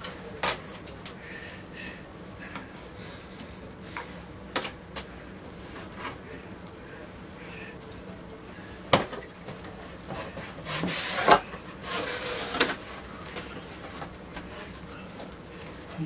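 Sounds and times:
cardboard scraping and rustling: 10.1 - 13.0.

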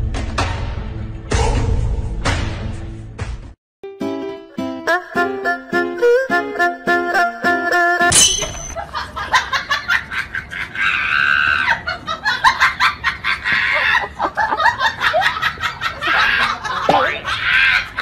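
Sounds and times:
people laughing and shrieking: 9.3 - 18.0.

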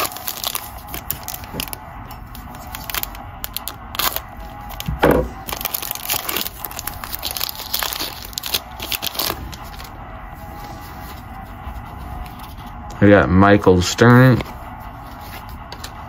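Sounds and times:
foil wrapper tearing and crinkling: 0.0 - 9.9.

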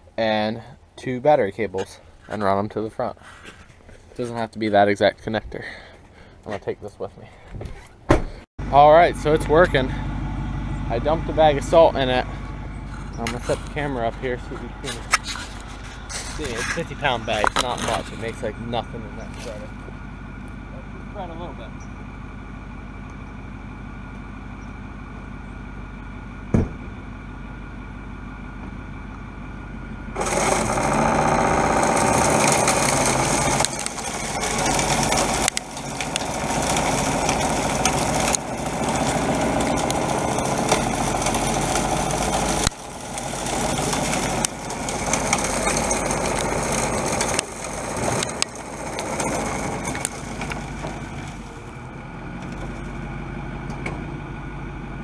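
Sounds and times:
truck engine idling: 8.6 - 55.0
salt spreader throwing rock salt: 12.9 - 19.8, 30.2 - 53.0
sharp knock: 26.5 - 26.9.

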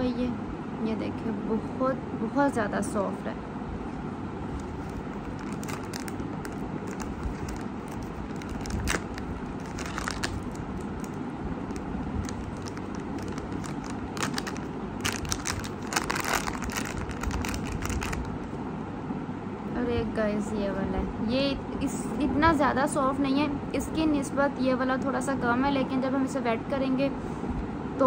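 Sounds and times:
low background rumble: 0.0 - 28.0
plastic wrapper crinkling and tearing: 4.6 - 18.5.

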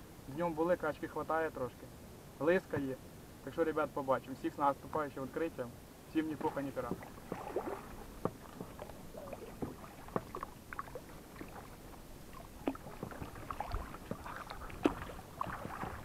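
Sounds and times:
oars splashing in water: 6.2 - 16.0
oar clicks: 6.4 - 16.0.

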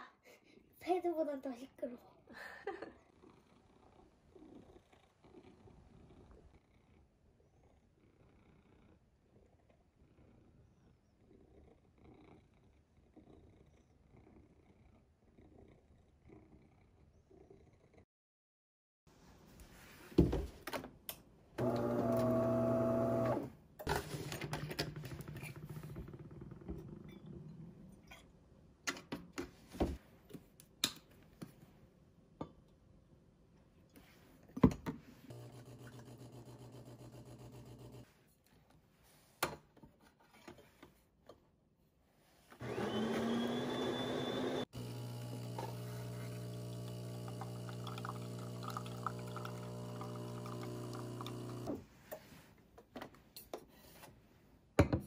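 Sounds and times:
grinder whir rising in pitch: 21.6 - 23.5, 42.6 - 51.8
espresso machine humming: 21.6 - 24.1, 35.3 - 38.0, 42.6 - 51.8
pump hum: 42.6 - 51.8.

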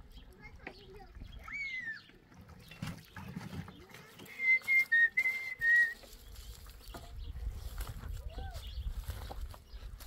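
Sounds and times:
person whistling: 4.3 - 6.0.

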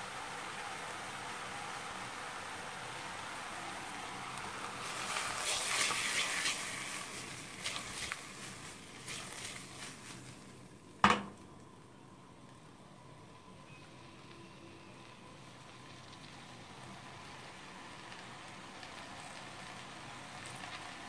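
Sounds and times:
vegetables sizzling in oil: 0.0 - 11.6, 12.6 - 21.0
metal pot clunk: 11.0 - 11.4.

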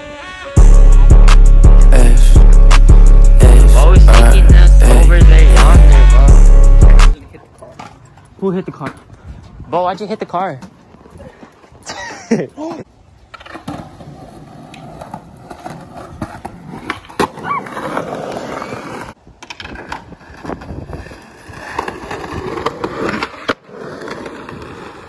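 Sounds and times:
skateboard rolling on concrete: 12.7 - 25.0
skateboard clacking on ground: 13.2 - 25.0
skateboard grinding a curb: 13.3 - 25.0.

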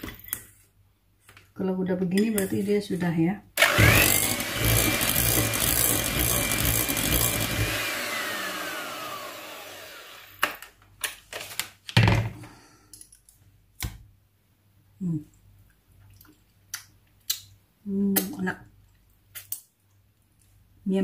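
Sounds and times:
electric mixer whining: 3.6 - 10.4.

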